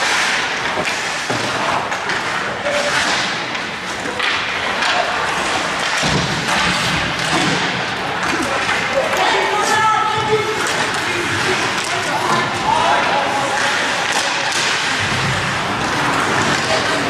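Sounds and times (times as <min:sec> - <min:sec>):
stick and puck knocks: 0:00.0 - 0:08.8
skates scraping ice: 0:00.0 - 0:17.0
thuds against rink boards: 0:00.0 - 0:17.0
scattered voices: 0:06.6 - 0:17.0.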